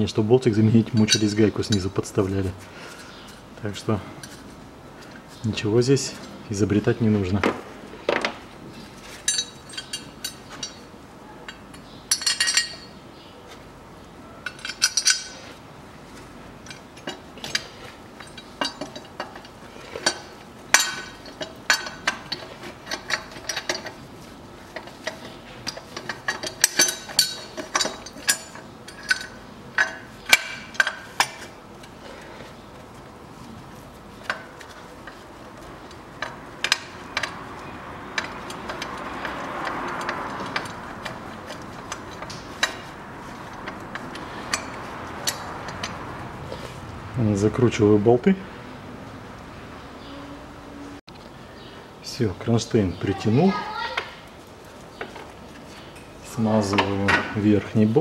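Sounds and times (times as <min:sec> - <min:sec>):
metal tools clinking: 0:00.5 - 0:02.2, 0:08.9 - 0:13.0, 0:14.4 - 0:15.6, 0:16.2 - 0:33.0, 0:33.8 - 0:46.7.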